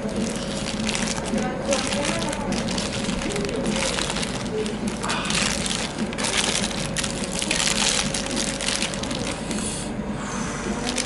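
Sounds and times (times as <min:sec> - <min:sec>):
paper wrapper crinkling: 0:00.0 - 0:09.7.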